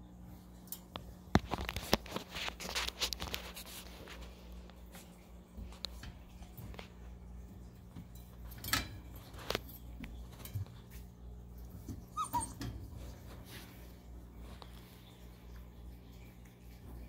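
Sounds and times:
puppy whimper: 0:12.0 - 0:12.9.

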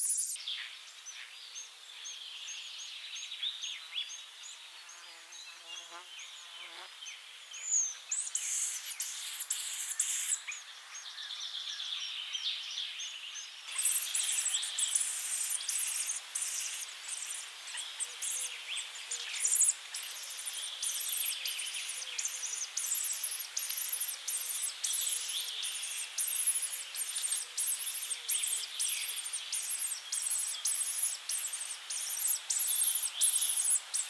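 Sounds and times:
nestlings high chirps: 0:00.0 - 0:00.4, 0:08.1 - 0:10.6, 0:13.7 - 0:34.0
nestlings hissing begging bursts: 0:13.7 - 0:18.5, 0:19.4 - 0:34.0.

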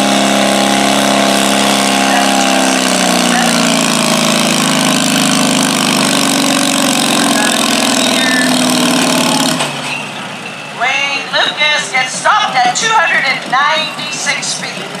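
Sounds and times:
tractor engine under heavy load: 0:00.0 - 0:15.0.

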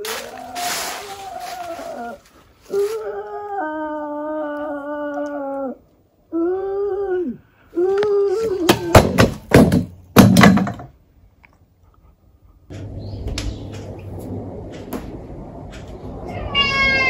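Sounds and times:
loud knocks and thuds: 0:08.7 - 0:11.0
cat meowing: 0:16.2 - 0:17.0.

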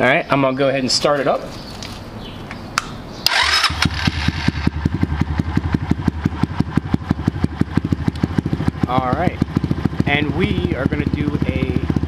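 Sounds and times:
motorbike engine starting and idling: 0:03.2 - 0:12.0.

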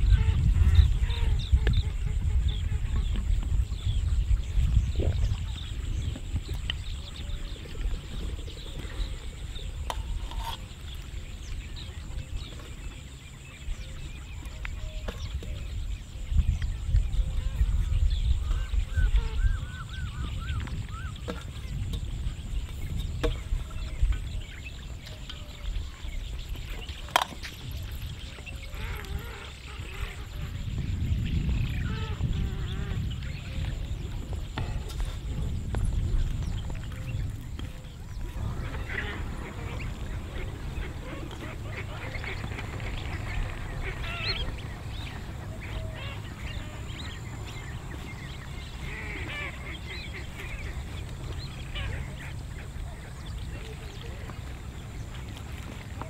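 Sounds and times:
birds calling faintly: 0:00.0 - 0:56.0
steady low rumble: 0:27.7 - 0:56.0.

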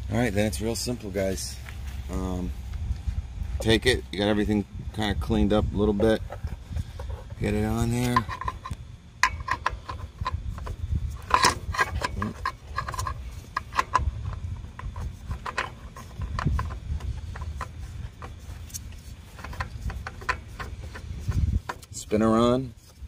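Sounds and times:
oil filter clicking and scraping: 0:05.8 - 0:23.0.

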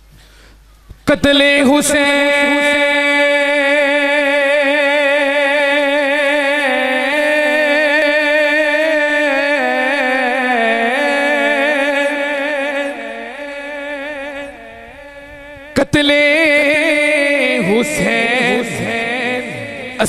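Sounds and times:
man singing a held note: 0:01.0 - 0:20.0.

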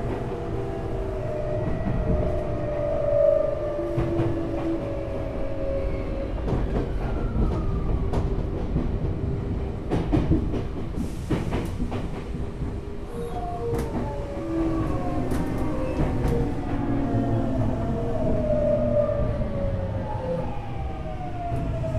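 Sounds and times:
train running rumble: 0:03.8 - 0:19.7.

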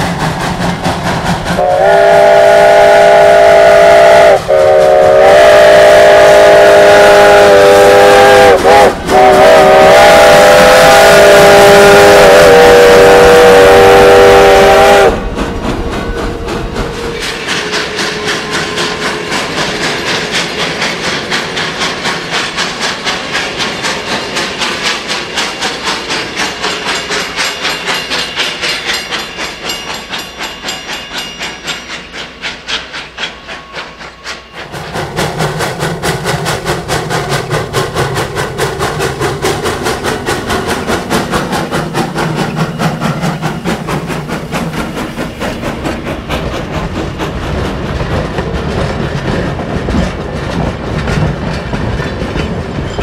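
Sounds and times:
freight train rolling past: 0:00.0 - 0:53.0
locomotive working hard: 0:00.0 - 0:53.0
steam locomotive chime whistle: 0:01.6 - 0:15.3, 0:15.9 - 0:20.8, 0:23.5 - 0:34.9.

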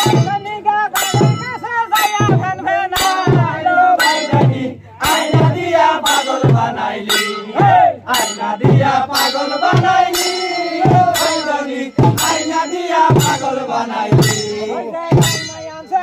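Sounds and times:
man singing into a microphone: 0:00.0 - 0:16.0
hand cymbals clashing: 0:01.0 - 0:03.4, 0:05.0 - 0:07.6, 0:08.2 - 0:15.9.

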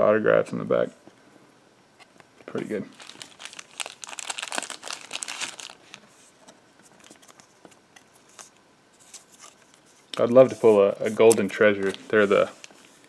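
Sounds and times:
foil wrapper crinkling and tearing: 0:02.9 - 0:06.1.

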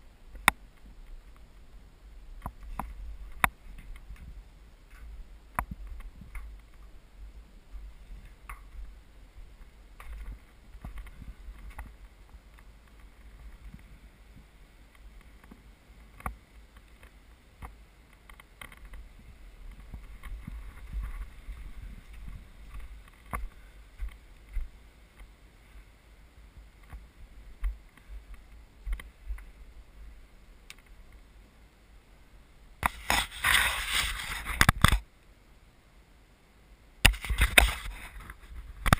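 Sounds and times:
fingers rustling on microphone: 0:07.7 - 0:25.9, 0:32.8 - 0:35.0, 0:37.0 - 0:38.9
small knocks and scrapes: 0:09.6 - 0:14.0, 0:14.9 - 0:25.3, 0:32.8 - 0:35.0, 0:37.1 - 0:38.9
camera handling rumble: 0:32.8 - 0:35.0, 0:37.1 - 0:38.9.

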